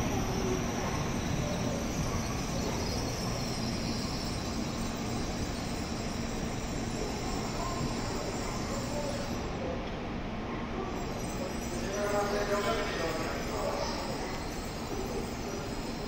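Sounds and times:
train wheels rolling: 0.0s - 9.5s.

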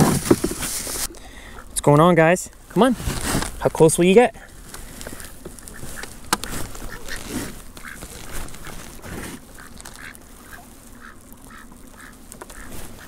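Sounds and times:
ducks quacking: 5.1s - 13.0s.

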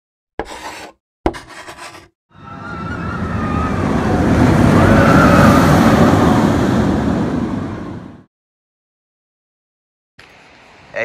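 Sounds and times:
rushing rumbling whoosh: 2.4s - 8.3s.

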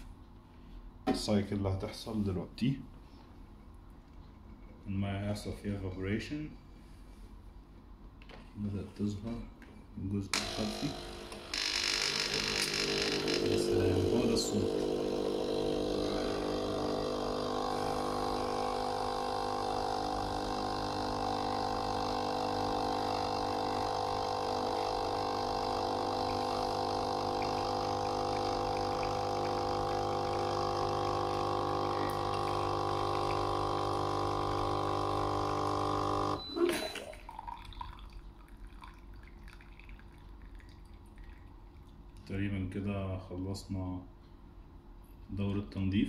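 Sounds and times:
espresso machine pump humming: 10.3s - 38.1s
water dripping into glass cup: 36.7s - 42.3s.

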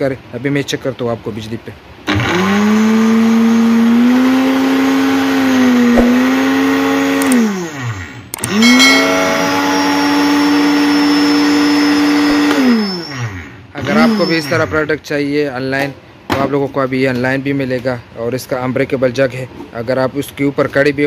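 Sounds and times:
blender motor whining: 2.1s - 14.8s.

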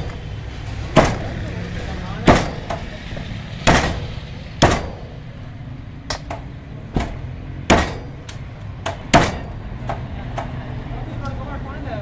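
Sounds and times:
cleaver chopping on wooden block: 7.7s - 8.1s.

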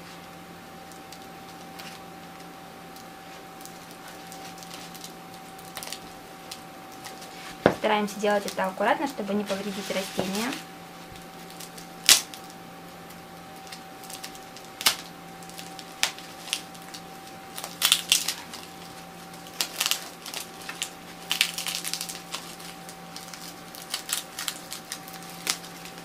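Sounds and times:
faint steady hum: 0.0s - 26.0s
tape and paper crackling: 0.0s - 26.0s
sharp crack: 11.6s - 12.5s.

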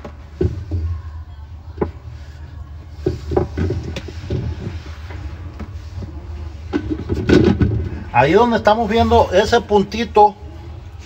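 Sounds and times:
plastic knocks and rubbing: 0.0s - 1.0s, 2.9s - 8.0s.

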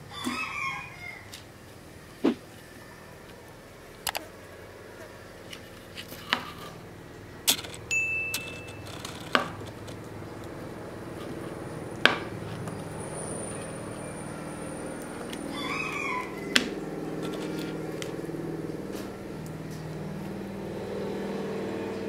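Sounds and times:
chopsticks clinking on metal tray: 7.5s - 10.0s.

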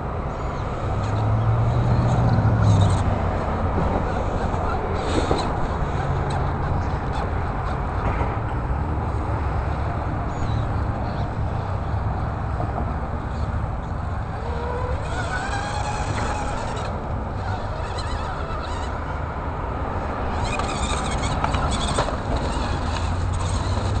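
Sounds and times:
toy car electric motor whining: 14.3s - 19.2s, 20.3s - 24.0s.

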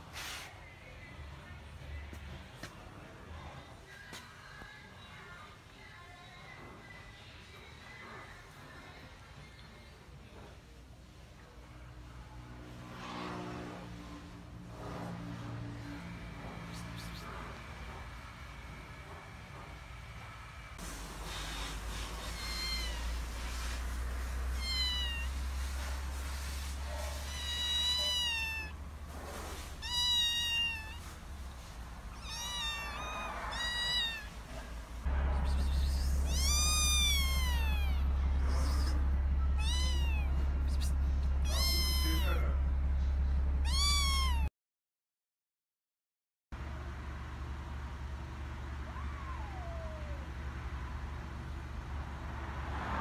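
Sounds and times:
kittens meowing: 22.1s - 23.5s, 24.4s - 25.6s, 27.0s - 31.2s, 32.1s - 34.6s, 35.4s - 42.5s, 43.6s - 44.5s, 48.9s - 50.4s
steady low hum: 30.8s - 44.4s.

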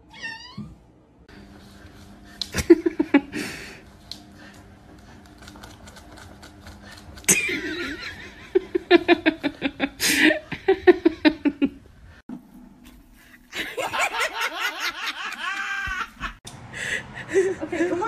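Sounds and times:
person laughing: 2.5s - 3.8s, 7.3s - 11.8s, 13.5s - 18.0s.

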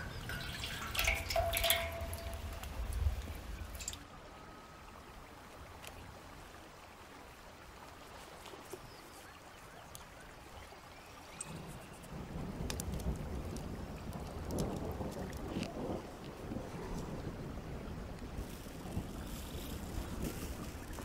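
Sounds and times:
faint open-air noise: 0.0s - 21.0s
wood fire rumbling and crackling: 12.3s - 21.0s.

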